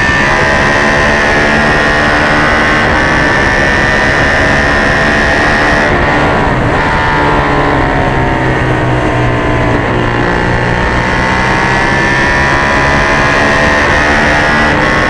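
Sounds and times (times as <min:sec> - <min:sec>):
motorcycle engine revving high: 0:00.0 - 0:15.0.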